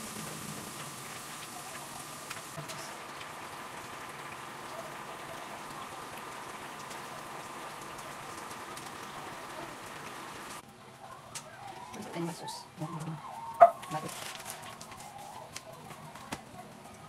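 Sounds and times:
sauce sizzling in a frying pan: 0.0 - 10.6.

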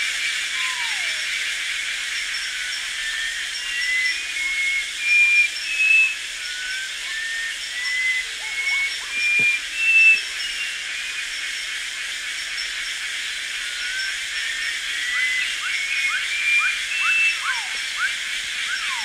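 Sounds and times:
insect chorus hiss: 0.0 - 19.0
bird whistling: 3.1 - 11.2, 15.0 - 19.0.

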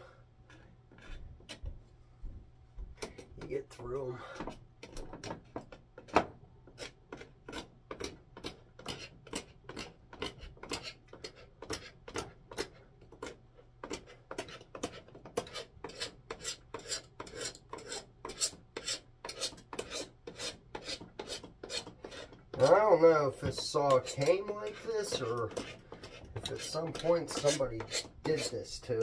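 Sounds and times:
rasp filing wood: 6.8 - 13.3, 13.9 - 29.0.

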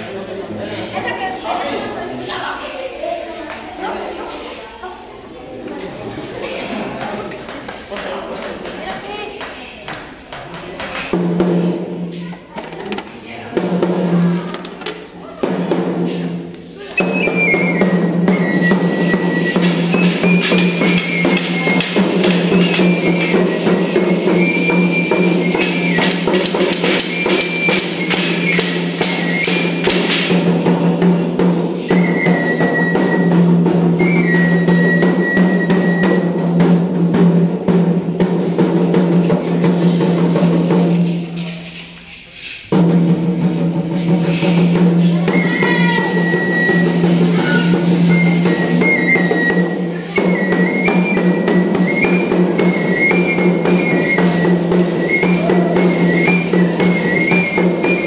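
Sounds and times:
rapid drumming: 10.1 - 58.0
high melody line: 17.0 - 29.9.

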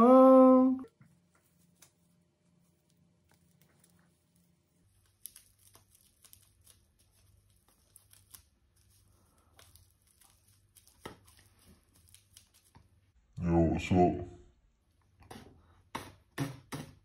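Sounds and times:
hair rustling: 1.0 - 13.1.

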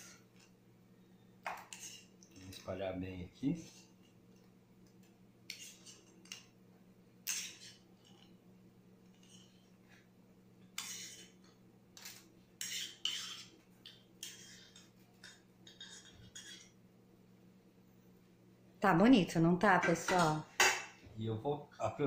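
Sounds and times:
faint steady hum: 0.0 - 22.0
metal spoon scraping ceramic bowl: 12.6 - 13.5, 15.6 - 16.8.

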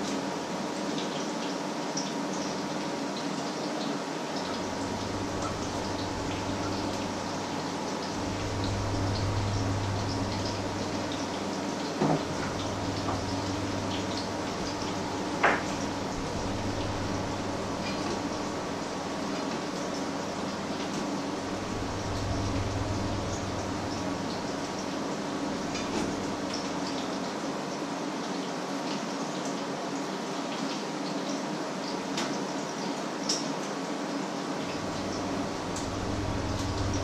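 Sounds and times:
steady low hum: 4.4 - 27.0, 34.6 - 37.0.

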